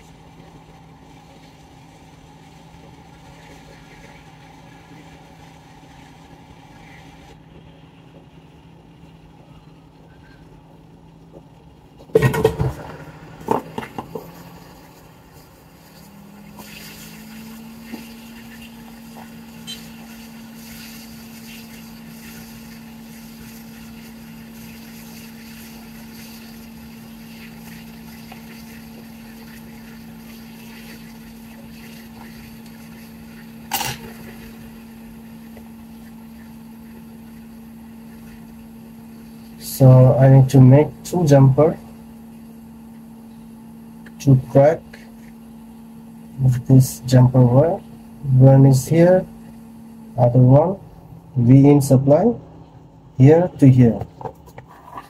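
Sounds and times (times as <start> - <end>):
hot-air station blowing: 0.0 - 7.5, 12.0 - 55.0.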